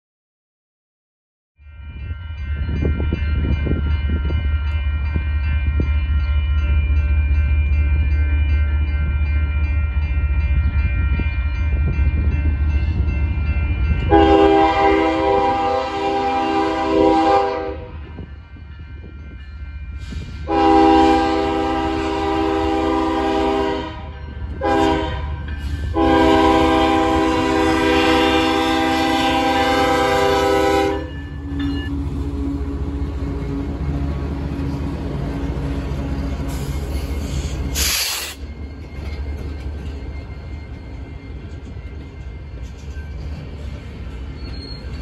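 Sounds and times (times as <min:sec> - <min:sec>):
locomotive air horn: 0:14.1 - 0:18.0, 0:20.4 - 0:31.1
train wheel noise: 0:18.1 - 0:45.0
brief hiss: 0:37.8 - 0:38.4.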